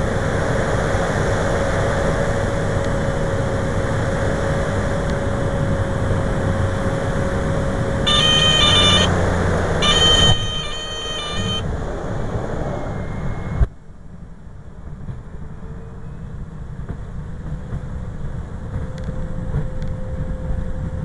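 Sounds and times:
low rumble of rollout: 0:00.0 - 0:21.0
turboprop and wind noise: 0:00.0 - 0:21.0
stall warning horn: 0:08.0 - 0:11.7.

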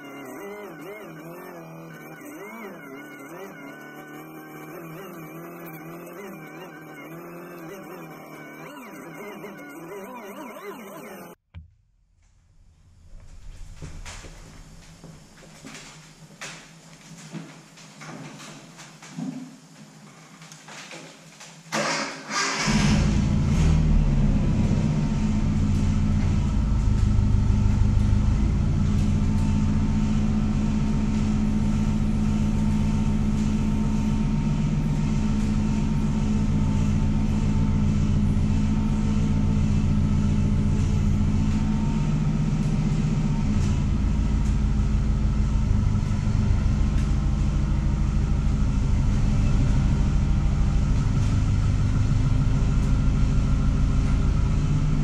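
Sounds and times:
forklift engine running: 0:00.0 - 0:11.4, 0:22.6 - 0:55.0.

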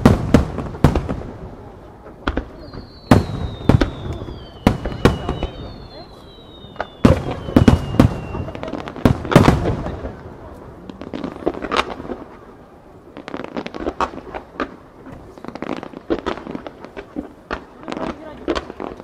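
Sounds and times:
rapid small firework pops: 0:00.0 - 0:12.4, 0:13.2 - 0:19.0
faint falling whistle: 0:02.6 - 0:08.6.

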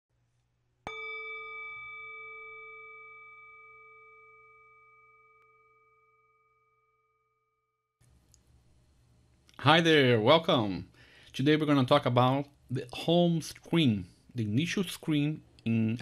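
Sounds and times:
bell-like chime ringing: 0:00.9 - 0:07.3.

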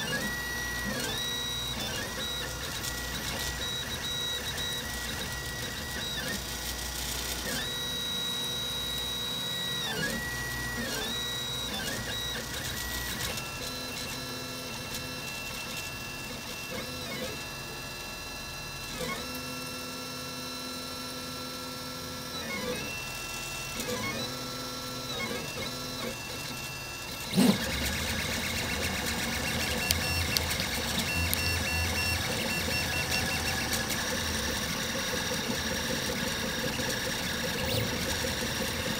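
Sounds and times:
stepper motors whining: 0:00.0 - 0:38.9.

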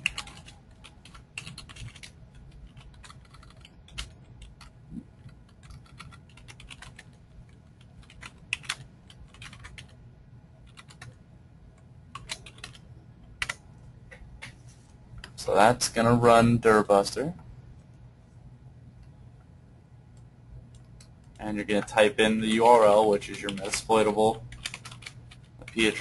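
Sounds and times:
typing on computer keyboard: 0:00.0 - 0:10.0, 0:10.6 - 0:11.2, 0:12.1 - 0:13.6, 0:20.7 - 0:26.0
faint low hum: 0:00.0 - 0:26.0.

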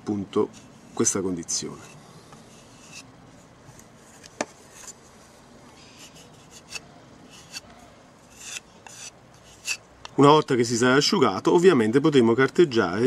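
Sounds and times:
metal spatula scraping on wood: 0:06.0 - 0:07.7, 0:08.3 - 0:09.8.

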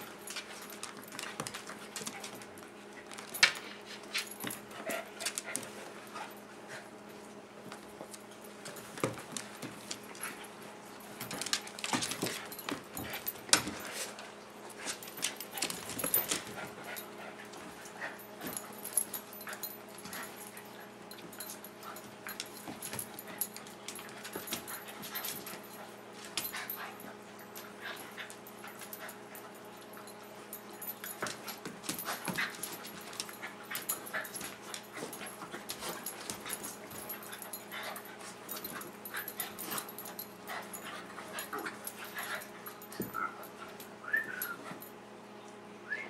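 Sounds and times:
dogs panting: 0:00.0 - 0:07.2, 0:08.2 - 0:44.9
paws scuffling on cushioned bed: 0:00.0 - 0:44.9
dogs whining: 0:32.0 - 0:45.0.

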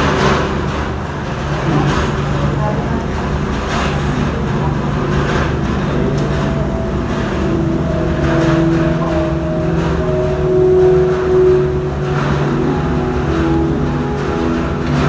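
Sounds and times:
steady low rumble: 0:00.0 - 0:15.0
slow music with long held notes: 0:04.9 - 0:15.0.

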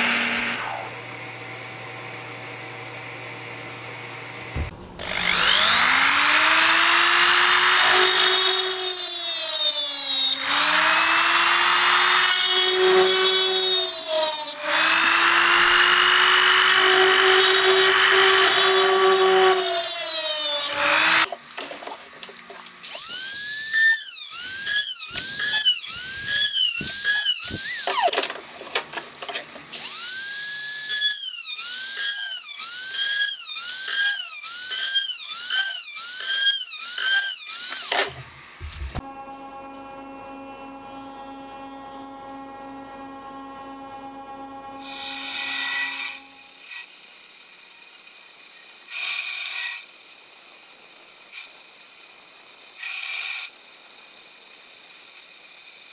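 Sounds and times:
rotary tool motor whine: 0:04.4 - 0:21.3, 0:22.8 - 0:28.2, 0:29.7 - 0:38.2, 0:44.8 - 0:55.9.

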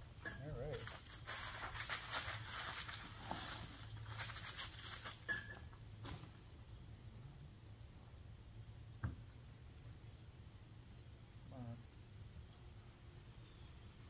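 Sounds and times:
footsteps crunching dry leaves: 0:00.7 - 0:05.2.

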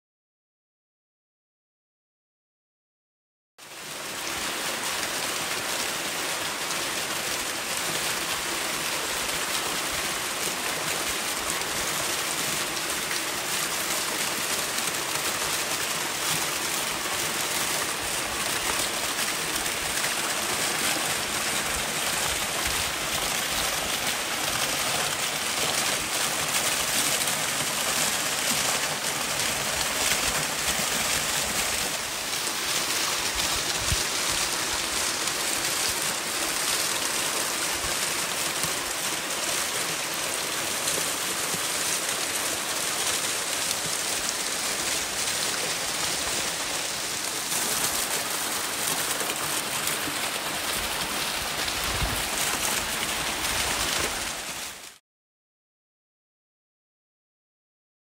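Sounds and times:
waterfall pouring: 0:03.8 - 0:55.0.

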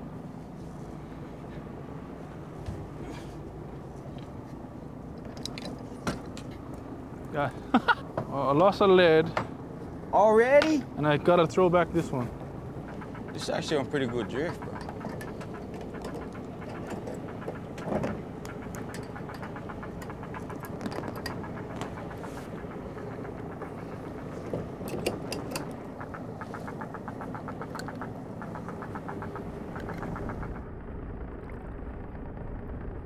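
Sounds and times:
boat engine idling: 0:00.0 - 0:33.0
fishing tackle clicking and rattling: 0:05.1 - 0:06.8, 0:12.9 - 0:30.4
rapid ticks: 0:11.3 - 0:30.7.

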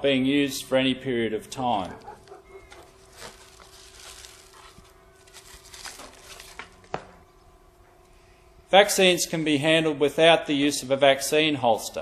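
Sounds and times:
steady low hum: 0:00.0 - 0:12.0
foil rustling and crinkling: 0:02.2 - 0:07.1.

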